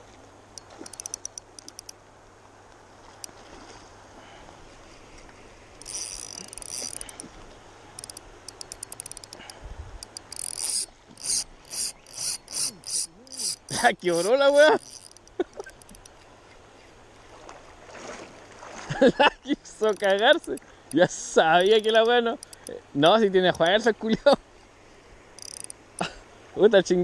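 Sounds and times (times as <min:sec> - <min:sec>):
fishing reel drag clicking: 0:00.6 - 0:02.0, 0:05.8 - 0:16.3, 0:19.8 - 0:22.8, 0:25.4 - 0:26.1.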